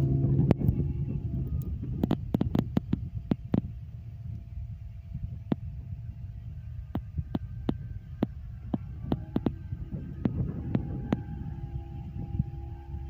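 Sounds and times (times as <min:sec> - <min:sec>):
boat motor throbbing rumble: 0:00.0 - 0:13.0
faint steady tone: 0:00.0 - 0:13.0.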